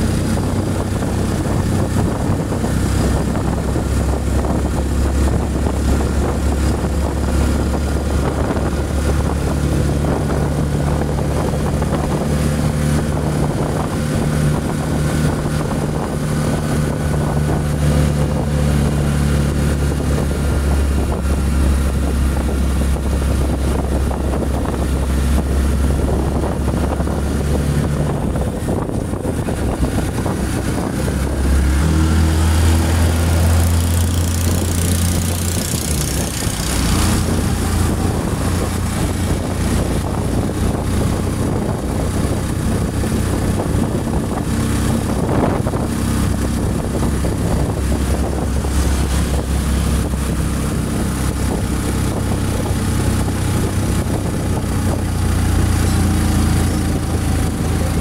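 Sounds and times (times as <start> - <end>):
road and wind noise: 0.0 - 58.0
truck engine running: 0.0 - 58.0.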